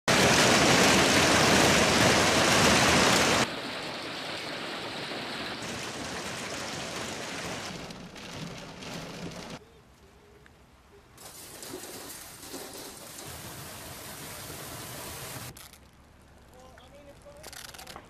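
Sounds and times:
heavy hail falling: 0:00.1 - 0:09.6, 0:11.2 - 0:15.5
rain: 0:00.1 - 0:09.6, 0:11.2 - 0:16.5.

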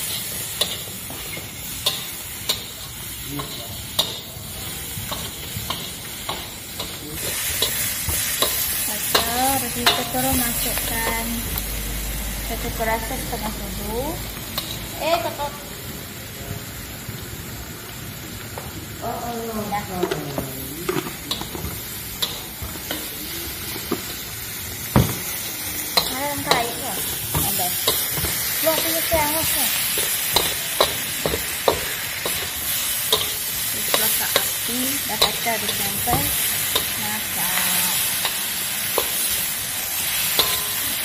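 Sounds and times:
food sizzling in oil: 0:00.0 - 0:41.0
metal spatula scraping wok: 0:40.0 - 0:41.0.

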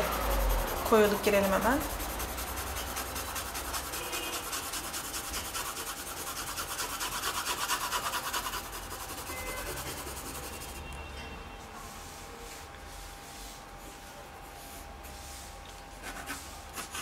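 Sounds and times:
pencil scratching on paper: 0:00.0 - 0:10.8, 0:16.0 - 0:17.0.

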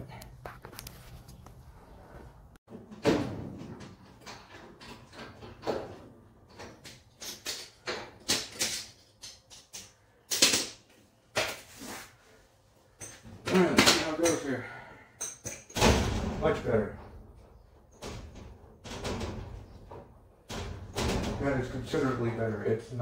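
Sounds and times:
metal door clanking and rattling: 0:02.7 - 0:09.0, 0:15.6 - 0:22.3.

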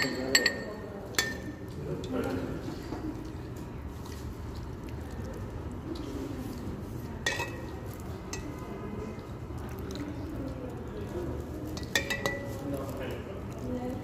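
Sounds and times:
ladle clinking on ceramic bowl: 0:00.0 - 0:02.1, 0:07.2 - 0:08.6, 0:11.7 - 0:12.6.

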